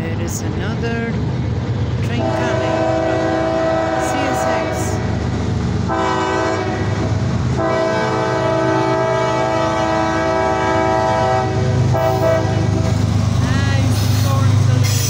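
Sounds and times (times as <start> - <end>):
diesel engines rumbling: 0.0 - 15.0
locomotive air horn blasts: 2.2 - 5.0, 5.9 - 7.0, 7.6 - 12.8.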